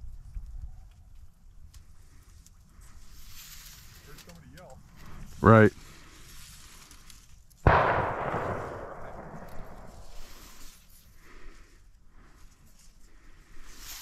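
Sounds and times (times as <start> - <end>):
dry grass rustling: 0.0 - 14.0
gunshot echoing: 7.7 - 10.7.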